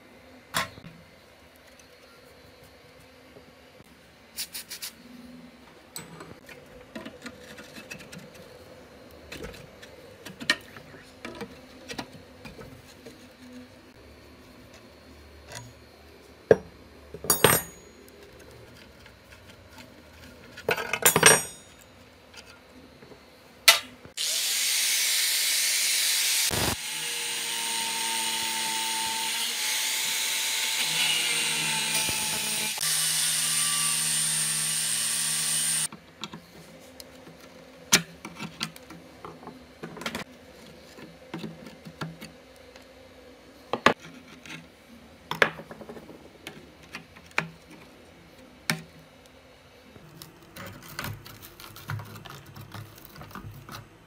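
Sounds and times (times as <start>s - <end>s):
angle grinder cutting steel: 24.2s - 35.9s.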